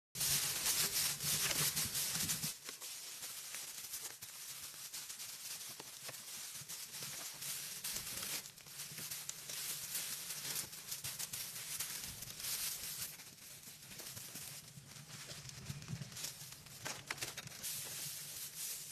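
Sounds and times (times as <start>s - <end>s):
dry straw rustling and crackling: 0.2s - 18.9s.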